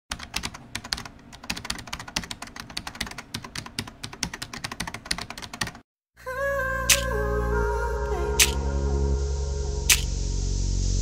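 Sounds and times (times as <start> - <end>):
fast keyboard typing: 0.1 - 5.8.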